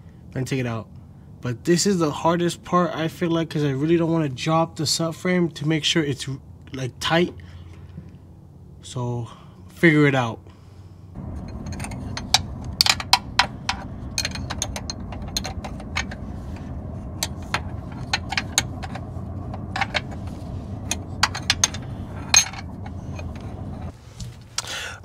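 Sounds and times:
steady low hum: 11.1 - 25.0.

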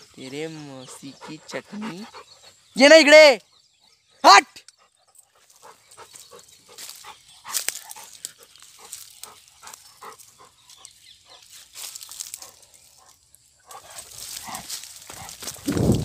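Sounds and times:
footsteps crunching dry leaves: 5.5 - 13.0, 13.7 - 16.0.

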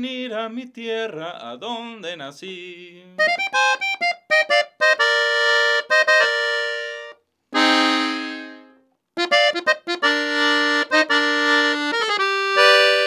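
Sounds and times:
button accordion melody: 3.2 - 13.0.

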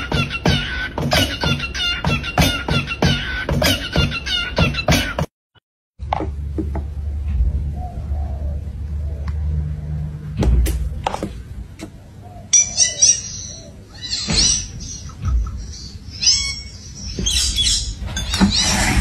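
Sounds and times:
parakeet chirping: 12.5 - 18.6.

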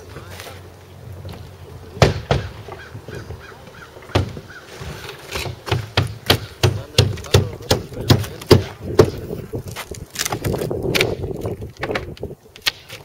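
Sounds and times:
knocks on wooden roof: 2.0 - 3.5, 4.1 - 9.2
faint bird calling: 2.3 - 5.3.

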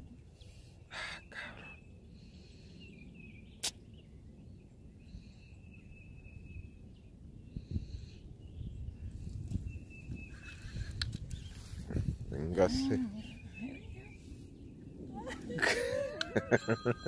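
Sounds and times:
wind rumble on microphone: 2.9 - 16.5
sharp click: 3.6 - 3.8
thin high steady tone: 15.7 - 17.0.

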